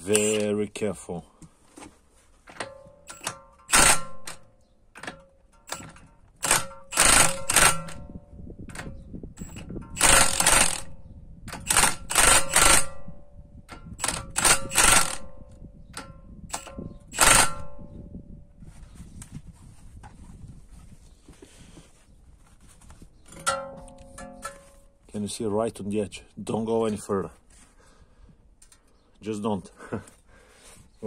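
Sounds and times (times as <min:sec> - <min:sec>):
impact wrench hammering: 0:02.6 - 0:04.4, 0:05.0 - 0:08.0, 0:08.8 - 0:13.1, 0:13.8 - 0:15.3, 0:16.0 - 0:17.8.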